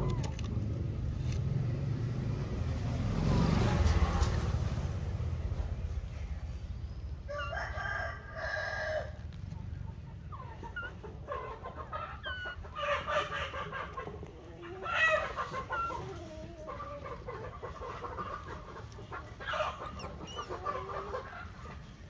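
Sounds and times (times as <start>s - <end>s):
animal calls: 10.1s - 22.0s.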